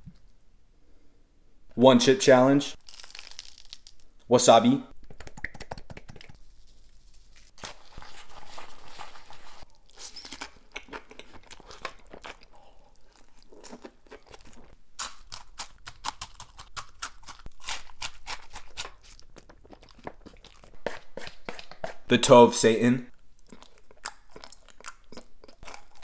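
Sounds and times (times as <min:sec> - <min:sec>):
crisp crunches: 0:02.8 - 0:04.1
person chewing: 0:07.6 - 0:22.0, 0:23.2 - 0:26.0.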